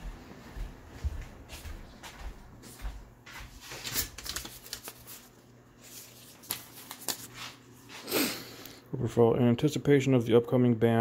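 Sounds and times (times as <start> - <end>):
paper rustling and crinkling: 3.4 - 8.0.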